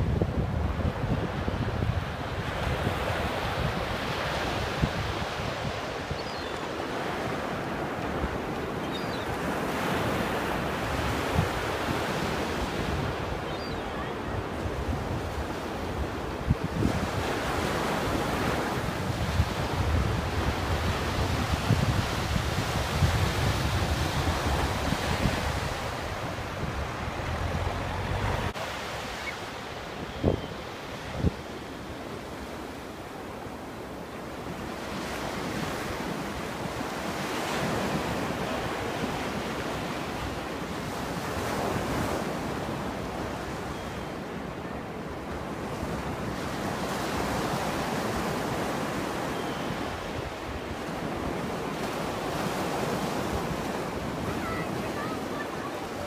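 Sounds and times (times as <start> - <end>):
wind buffeting microphone: 0.0 - 6.3, 10.9 - 29.1.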